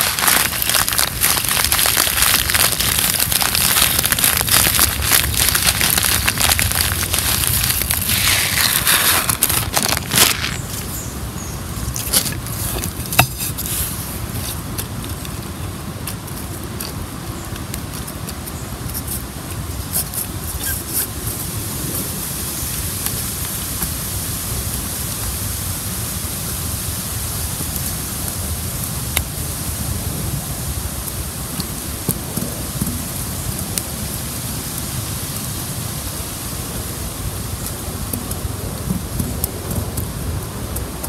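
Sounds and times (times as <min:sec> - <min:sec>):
steady outdoor hiss: 0:00.0 - 0:41.0.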